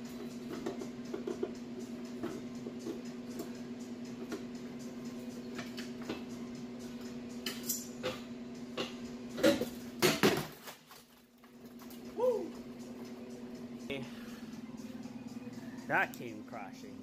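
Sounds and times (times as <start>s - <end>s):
steady hum: 11.5s - 17.0s.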